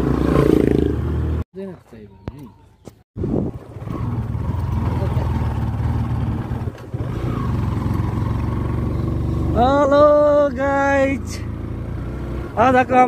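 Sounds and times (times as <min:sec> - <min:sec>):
motorcycle engine running: 0:03.2 - 0:12.8.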